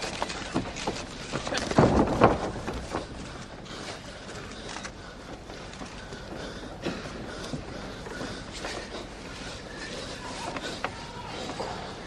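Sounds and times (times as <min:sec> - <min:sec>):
crowd murmur: 0:03.7 - 0:12.0.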